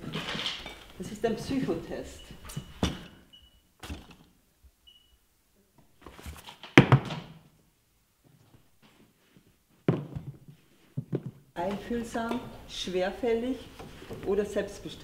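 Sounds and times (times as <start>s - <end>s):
boots knocking on wooden floor: 9.8s - 11.4s.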